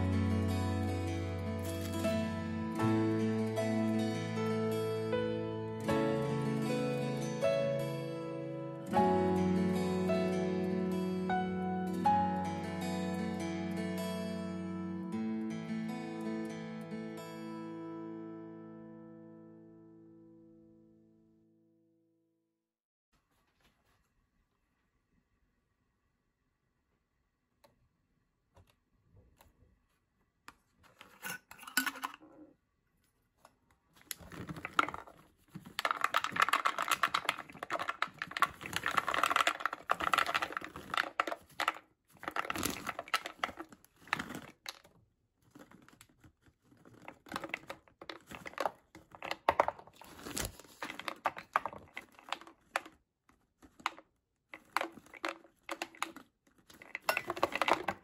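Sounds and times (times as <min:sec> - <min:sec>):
bag rustling: 0:34.1 - 0:44.8, 0:45.4 - 0:52.9
nuts rattling in plastic bottle: 0:34.1 - 0:58.0.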